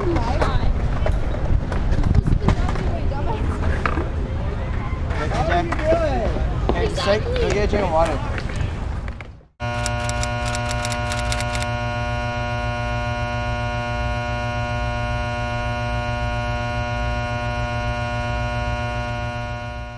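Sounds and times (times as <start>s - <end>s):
crackling clicks: 9.6s - 11.7s
electrical hum: 9.6s - 19.9s.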